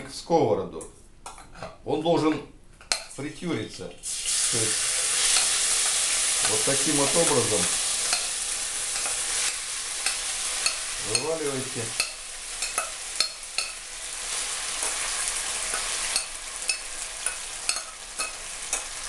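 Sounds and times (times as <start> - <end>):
fern sizzling in hot oil: 4.0 - 19.0
saucepan clinking against pan: 10.0 - 11.3, 11.9 - 13.8, 15.7 - 18.9.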